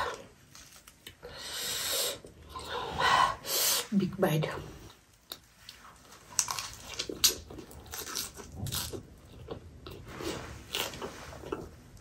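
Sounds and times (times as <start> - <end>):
lettuce crunching: 5.2 - 11.7.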